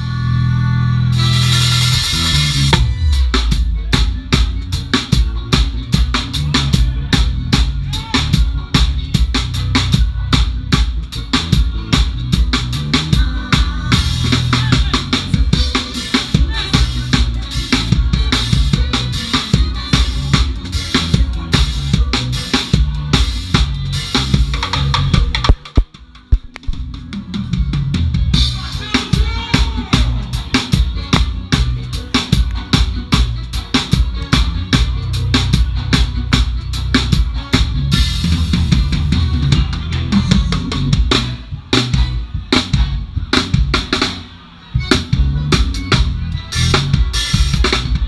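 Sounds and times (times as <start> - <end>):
steady bass: 0.0 - 48.0
drum kit groove: 1.1 - 48.0
sharp drum hits: 25.2 - 26.8.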